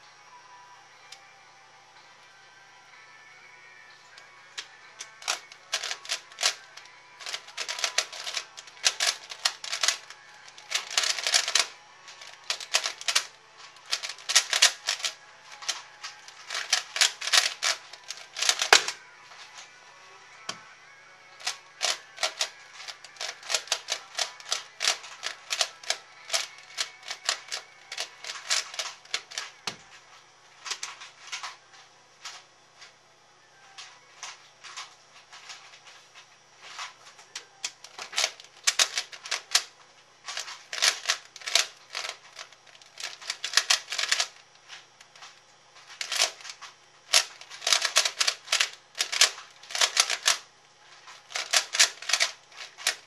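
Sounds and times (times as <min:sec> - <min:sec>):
puzzle cube clicking: 0:04.6 - 0:19.0, 0:21.4 - 0:29.5, 0:37.4 - 0:39.7, 0:40.3 - 0:44.4, 0:46.0 - 0:50.4, 0:51.2 - 0:53.0.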